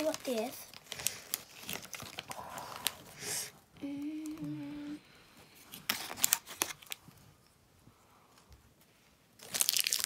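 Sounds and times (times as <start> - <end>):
packaging crinkling: 0.0 - 3.2, 5.7 - 7.0, 9.4 - 10.0
person humming: 3.8 - 5.2.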